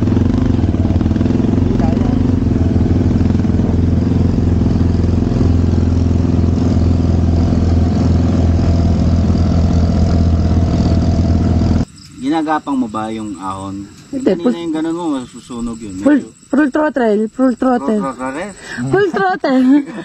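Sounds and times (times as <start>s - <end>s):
scooter engine running hard: 0.0s - 11.8s.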